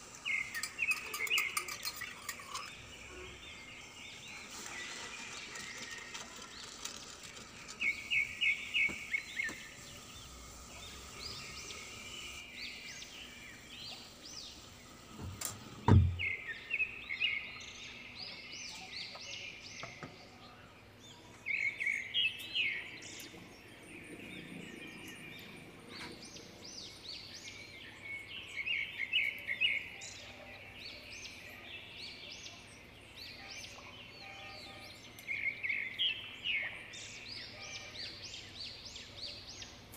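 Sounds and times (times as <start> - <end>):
steady low hiss: 0.0 - 18.2
small birds chirping trills: 0.0 - 39.9.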